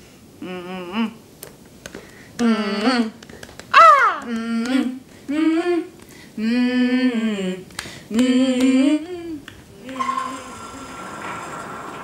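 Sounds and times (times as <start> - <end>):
women singing wordless tune: 2.4 - 3.2, 4.2 - 10.5.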